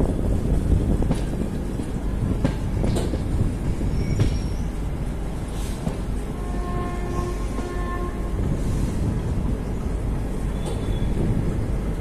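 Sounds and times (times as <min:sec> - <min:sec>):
train rumble: 0:00.0 - 0:12.0
train wheels clacking over joints: 0:01.0 - 0:04.6
train wheel squeal: 0:03.8 - 0:04.8, 0:10.5 - 0:11.3.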